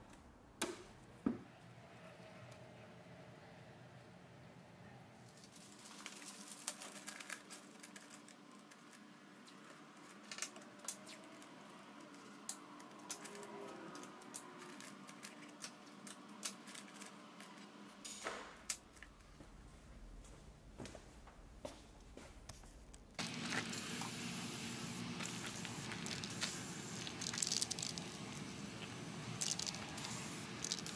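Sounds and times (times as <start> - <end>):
newspaper rustling and crackling: 5.4 - 9.0.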